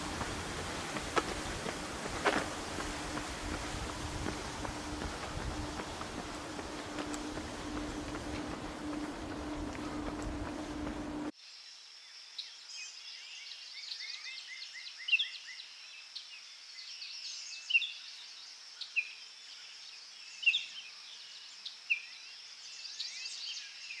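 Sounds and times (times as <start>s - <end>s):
faint high hiss: 0.0s - 12.8s.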